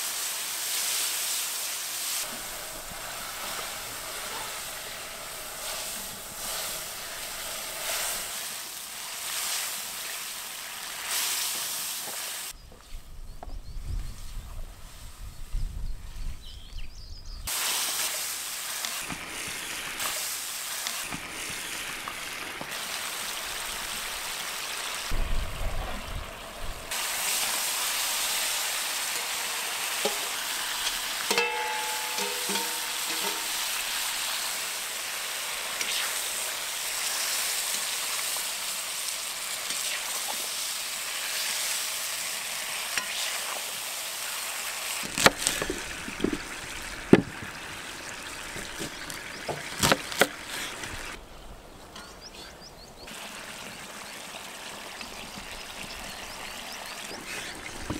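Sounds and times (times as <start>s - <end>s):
meat and vegetables sizzling: 0.0s - 12.6s, 17.5s - 51.2s
metal scraping on steel pot: 2.2s - 8.3s, 29.1s - 34.2s
metal ladle stirring: 29.0s - 34.1s.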